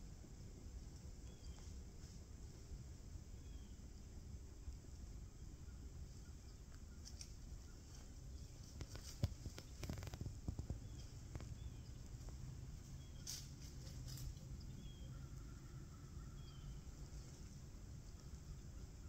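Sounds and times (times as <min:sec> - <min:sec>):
faint bird chirps: 0:01.2 - 0:01.8, 0:03.3 - 0:04.1, 0:05.2 - 0:19.0
deer stepping in dry leaves: 0:07.0 - 0:14.6.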